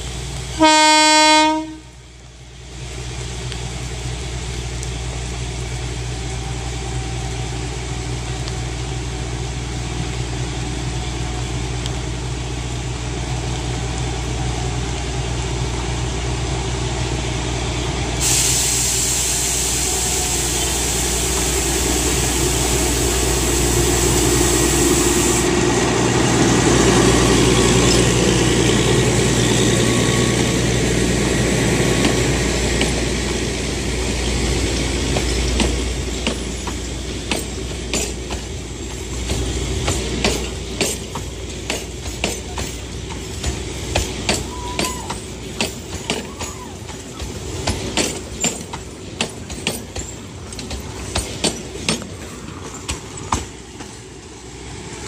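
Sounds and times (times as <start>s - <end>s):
diesel locomotive engine running: 0.0s - 55.0s
train coaches rolling past: 0.0s - 55.0s
loud hiss: 17.0s - 42.1s.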